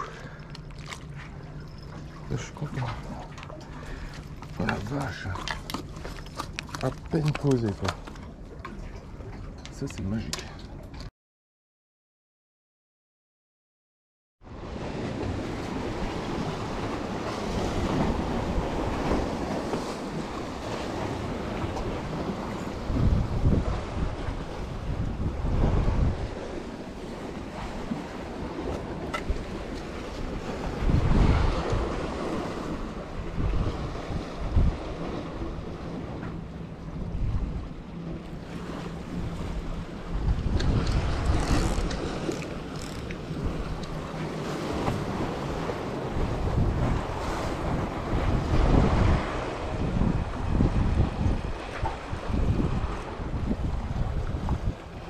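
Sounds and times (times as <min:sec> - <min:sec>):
sea waves washing against concrete: 0:02.2 - 0:08.2, 0:14.7 - 0:36.2, 0:38.2 - 0:55.0
wind noise on microphone: 0:14.5 - 0:36.2, 0:36.9 - 0:55.0.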